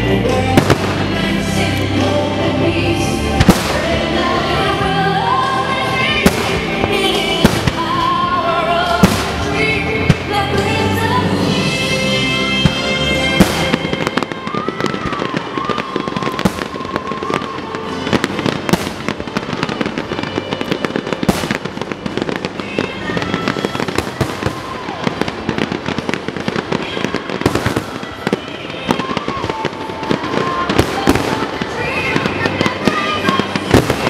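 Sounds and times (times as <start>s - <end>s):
background music: 0.0s - 34.0s
fireworks bangs: 0.0s - 34.0s
fireworks crackling: 0.0s - 34.0s.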